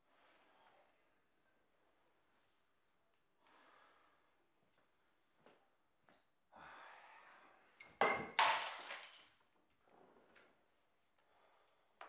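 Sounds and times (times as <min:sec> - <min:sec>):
glass crashing and shattering: 0:07.9 - 0:09.4.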